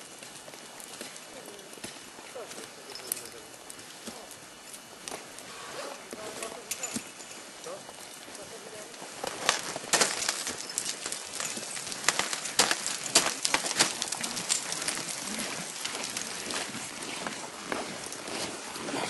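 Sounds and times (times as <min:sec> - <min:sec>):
ice axes striking ice: 0:09.2 - 0:19.0.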